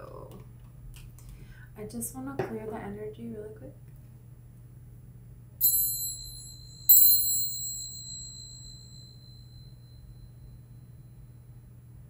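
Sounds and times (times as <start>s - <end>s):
small cymbals ringing: 5.6s - 11.4s.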